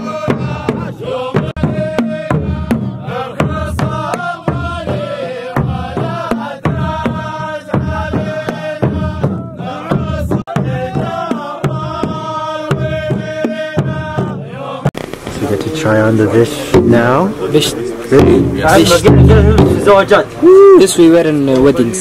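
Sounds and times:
frame drum beat: 0:00.0 - 0:15.0, 0:16.5 - 0:20.2
men chanting together: 0:00.0 - 0:15.0, 0:18.2 - 0:20.0.

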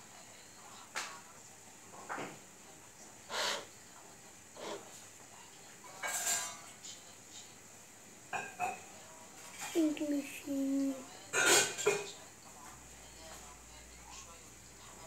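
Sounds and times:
child vocal sound: 0:09.8 - 0:11.0.

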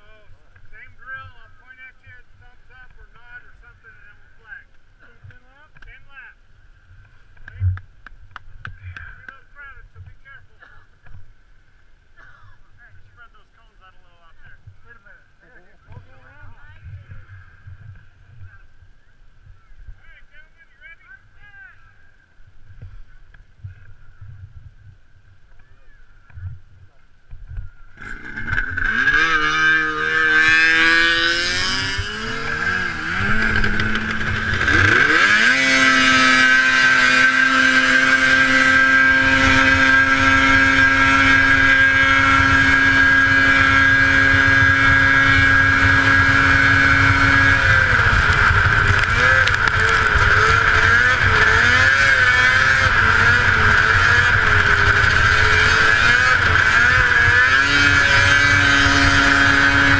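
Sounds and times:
snowmobile engine revving: 0:27.9 - 0:59.9.

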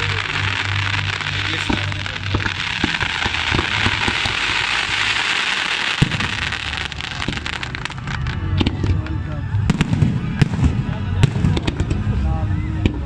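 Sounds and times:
firework bang: 0:00.0 - 0:09.1
fireworks crackling hiss: 0:00.0 - 0:09.1.

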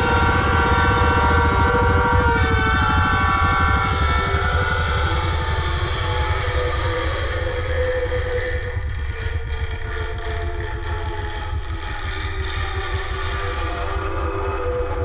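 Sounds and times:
sustained tones: 0:00.0 - 0:07.2
fast low throbbing drone: 0:00.0 - 0:07.8.

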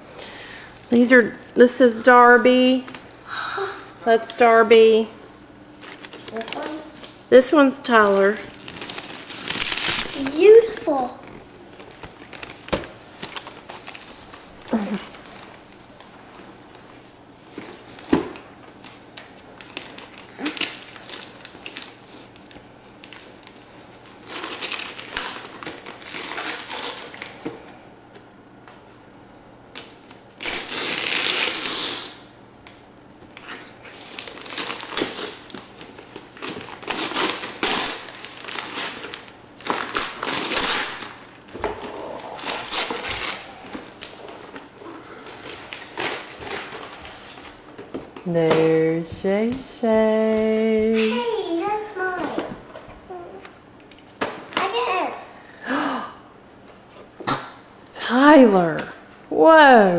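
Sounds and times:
wrapping paper tearing and crumpling: 0:05.8 - 0:07.2, 0:08.0 - 0:16.1, 0:18.7 - 0:27.7, 0:29.6 - 0:47.5.

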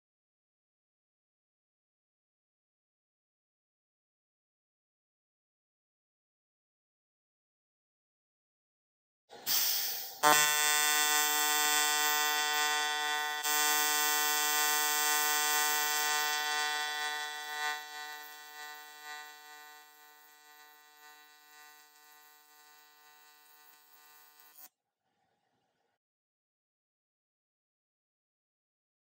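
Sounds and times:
welding arc buzzing: 0:09.5 - 0:24.7.

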